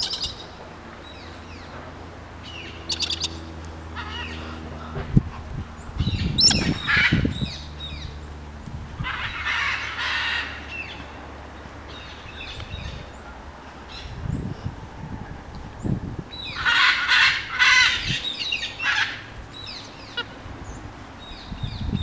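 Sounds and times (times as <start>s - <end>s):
cockatoos screeching: 2.5s - 4.8s, 6.1s - 7.6s, 9.0s - 11.0s, 16.4s - 20.4s.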